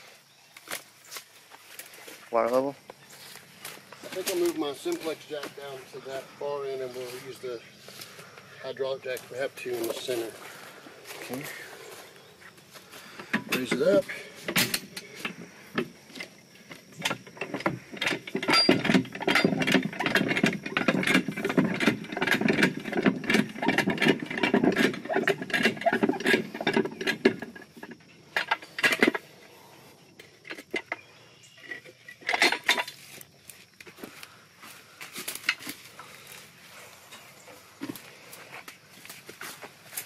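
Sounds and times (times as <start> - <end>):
metallic knocks: 17.0 - 27.6
jack ratchet clattering: 17.0 - 29.2.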